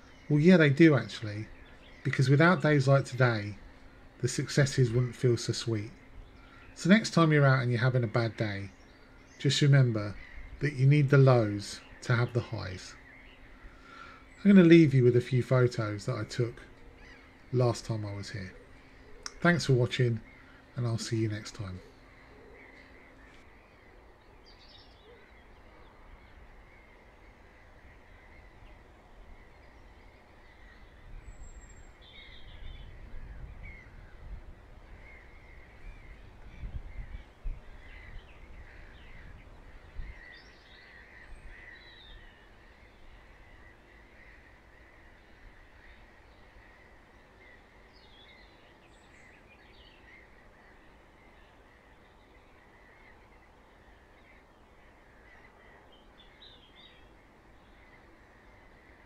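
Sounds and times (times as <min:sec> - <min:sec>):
birds calling and chirping: 0:00.0 - 0:59.0.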